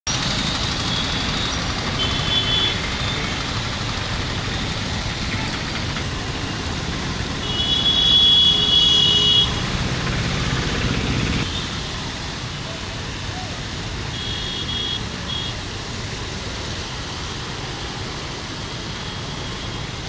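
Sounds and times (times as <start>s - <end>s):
motorbike and rickshaw engines: 0.1s - 20.0s
vehicle horn: 2.0s - 3.2s, 7.4s - 9.6s, 14.1s - 15.6s.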